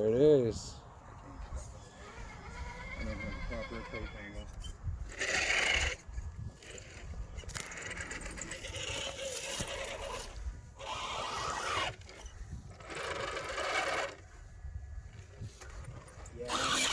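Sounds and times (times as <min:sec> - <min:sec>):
electric motors whirring: 0:01.4 - 0:14.4, 0:15.1 - 0:16.9
tyres scraping on rock: 0:05.1 - 0:14.2.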